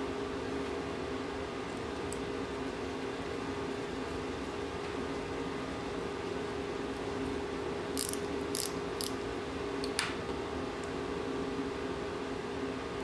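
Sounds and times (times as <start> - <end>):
screwdriver metal clicks and scrapes: 8.0 - 9.2.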